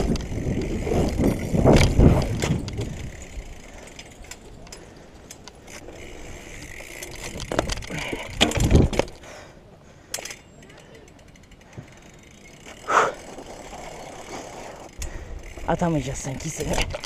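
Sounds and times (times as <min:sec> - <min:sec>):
bike wheel thumping down: 0:00.0 - 0:03.2, 0:06.8 - 0:09.2
bike rattling: 0:00.0 - 0:17.0
bike tyres on stone paving: 0:00.0 - 0:17.0.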